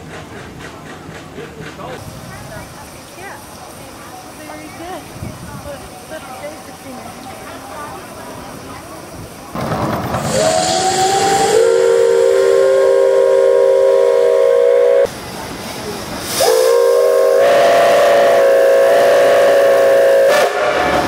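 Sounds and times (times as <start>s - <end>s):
steam hiss: 0.0s - 21.0s
steam whistle chord: 10.3s - 15.1s, 16.4s - 21.0s.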